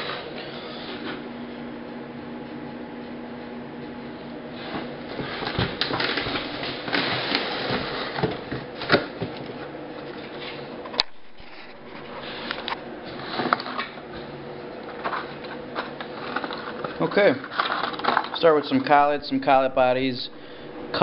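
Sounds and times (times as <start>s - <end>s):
cardboard rustling and scraping: 4.6s - 10.6s, 11.4s - 14.0s, 14.9s - 18.4s.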